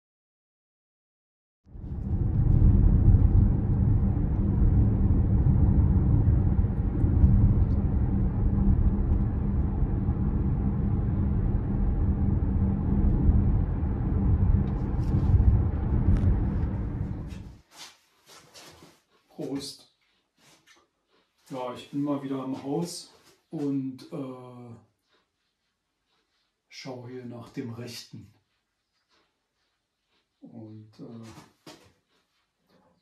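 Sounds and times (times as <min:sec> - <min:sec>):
electric van rumbling: 0:01.7 - 0:17.6.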